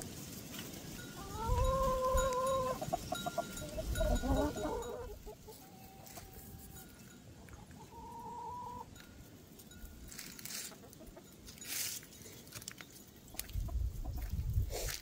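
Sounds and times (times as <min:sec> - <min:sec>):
hens clucking and calling: 0:01.2 - 0:09.0, 0:10.1 - 0:12.0, 0:13.2 - 0:14.6.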